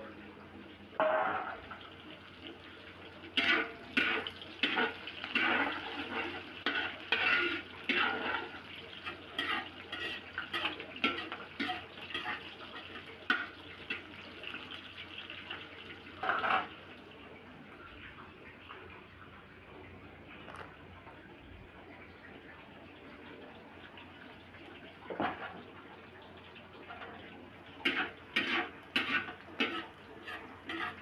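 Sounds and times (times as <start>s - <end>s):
garlic and onion frying in oil: 0.0s - 31.0s
metal spatula scraping a wok: 3.4s - 14.1s, 16.2s - 16.7s, 27.8s - 31.0s.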